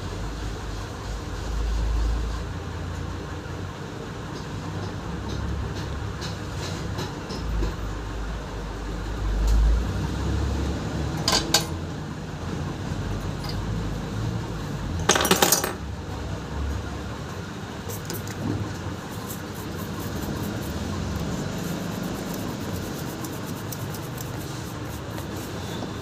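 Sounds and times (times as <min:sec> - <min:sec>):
metal tools clinking on workbench: 0:15.1 - 0:15.8
scratchy rubbing: 0:19.0 - 0:26.0.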